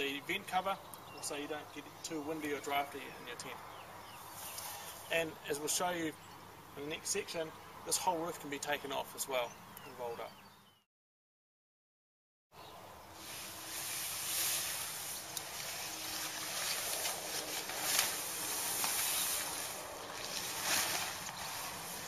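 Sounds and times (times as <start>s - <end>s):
tent fabric rustling and swishing: 13.2s - 22.0s.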